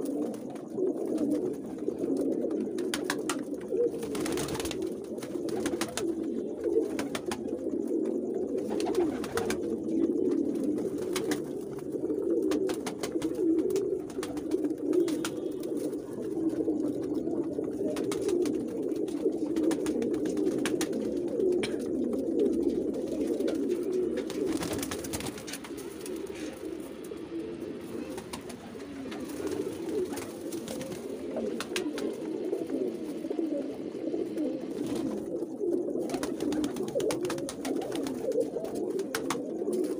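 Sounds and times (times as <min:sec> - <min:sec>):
pigeons cooing: 0:00.0 - 0:39.9.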